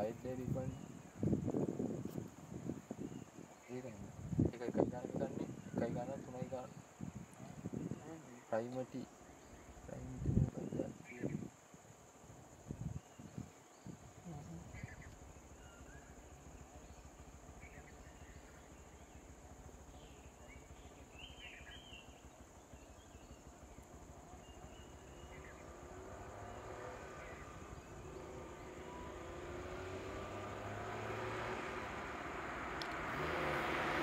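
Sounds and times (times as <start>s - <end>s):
high insect drone: 0.0s - 34.0s
small car engine approaching: 14.5s - 34.0s.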